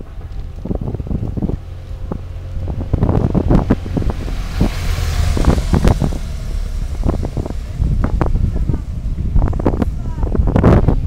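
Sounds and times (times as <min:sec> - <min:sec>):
low rumble: 0:00.0 - 0:11.0
wind buffeting microphone: 0:00.0 - 0:11.0.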